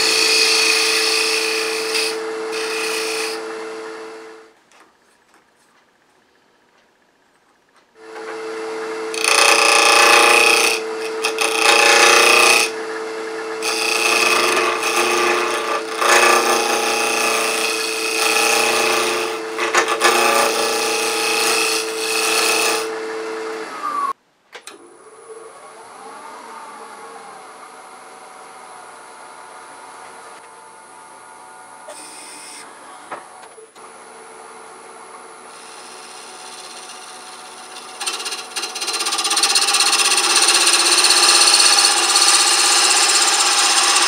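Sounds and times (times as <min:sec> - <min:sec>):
gouge cutting wood on lathe: 0:00.0 - 0:04.2, 0:08.2 - 0:23.6, 0:35.5 - 0:44.0
wood lathe running: 0:00.0 - 0:04.4, 0:08.0 - 0:24.2, 0:35.4 - 0:44.0.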